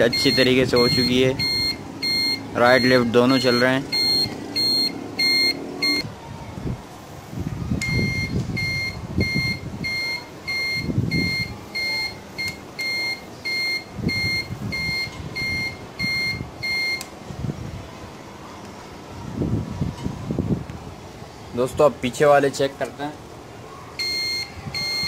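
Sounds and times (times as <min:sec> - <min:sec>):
turn-signal beeper: 0:00.0 - 0:06.0, 0:07.8 - 0:17.1, 0:24.0 - 0:25.0.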